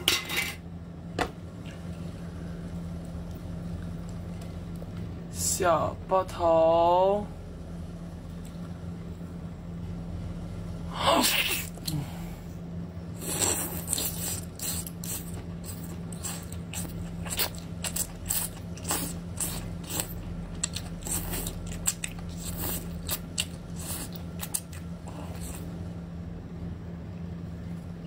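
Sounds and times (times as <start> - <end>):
wet chewing and slurping: 13.1 - 25.8.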